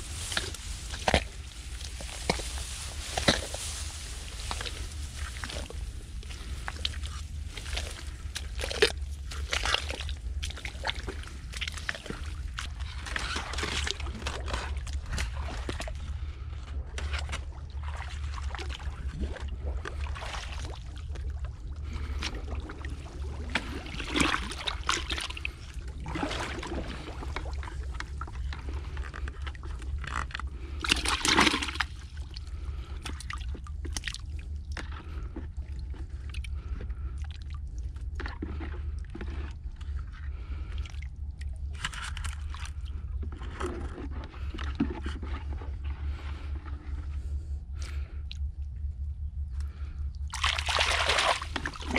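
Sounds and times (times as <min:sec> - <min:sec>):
fish put in plastic bucket: 0:00.0 - 0:08.9
hands splashing in muddy water: 0:00.0 - 0:15.9, 0:30.8 - 0:32.3, 0:50.3 - 0:51.9
steady low rumble: 0:00.0 - 0:51.9.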